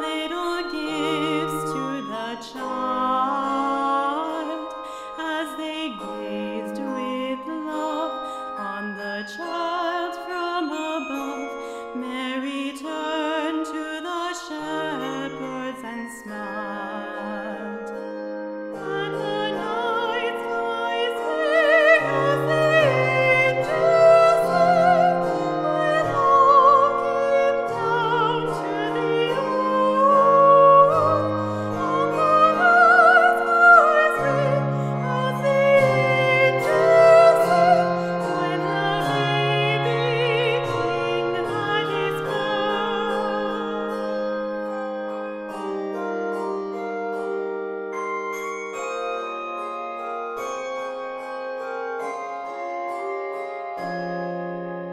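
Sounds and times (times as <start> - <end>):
woman singing with vibrato: 0.0 - 18.0, 18.8 - 44.2
handbells ringing chords: 0.0 - 54.6.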